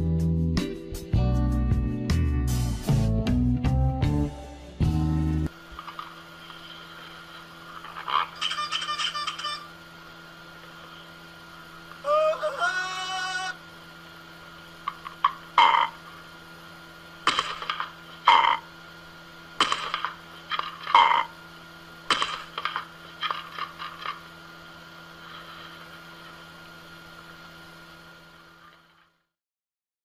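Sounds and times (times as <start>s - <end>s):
faint steady hum: 4.2s - 29.3s
parrot squawking: 8.1s - 9.7s.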